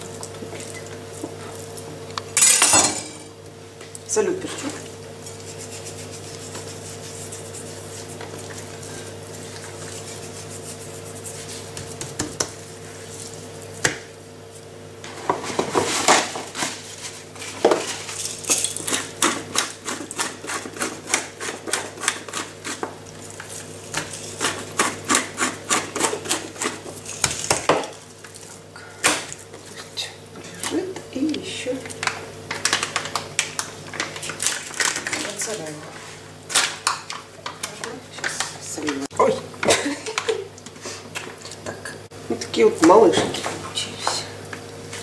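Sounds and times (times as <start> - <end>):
steady low hum: 0.0 - 45.0
pepper mill grinding: 17.4 - 28.4.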